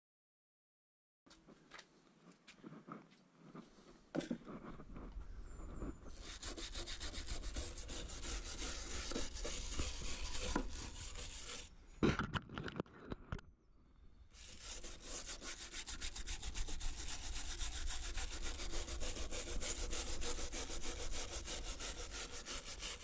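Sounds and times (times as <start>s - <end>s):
wooden stick scraping wooden board: 3.8s - 13.4s, 14.4s - 23.0s.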